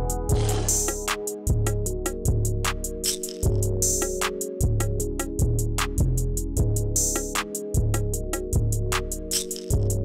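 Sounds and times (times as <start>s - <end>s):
deep bass notes: 0.0s - 2.7s.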